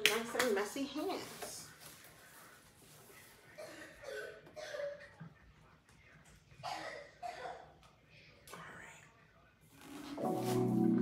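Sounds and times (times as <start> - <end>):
person coughing: 3.6 - 5.1, 6.6 - 7.7.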